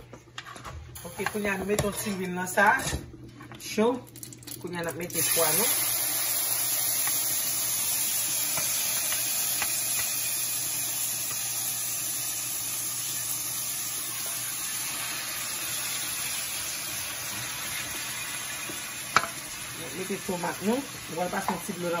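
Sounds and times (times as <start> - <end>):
liver sizzling in hot oil: 5.1 - 22.0.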